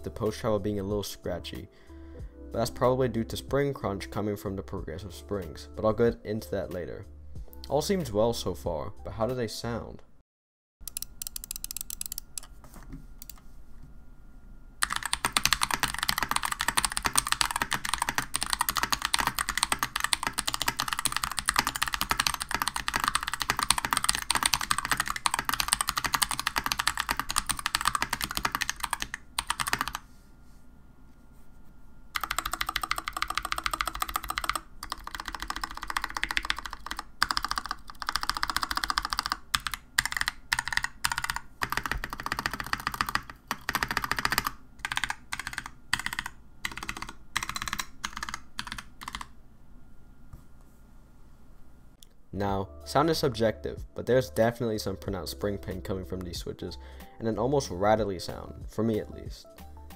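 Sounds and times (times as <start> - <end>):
mechanical keyboard typing: 10.8 - 12.5, 14.8 - 30.0, 32.2 - 49.3.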